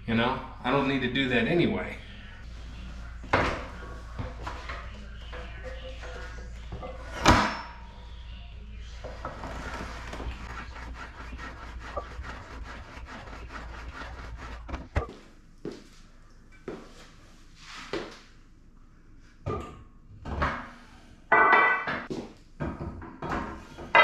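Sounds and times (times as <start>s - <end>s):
weight sled rubbing and clicking: 9.3s - 15.1s.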